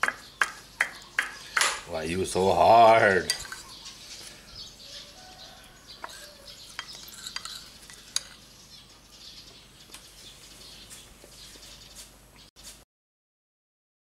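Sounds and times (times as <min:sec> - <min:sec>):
spoon scraping porcelain bowl: 0:03.0 - 0:04.4, 0:05.0 - 0:08.5.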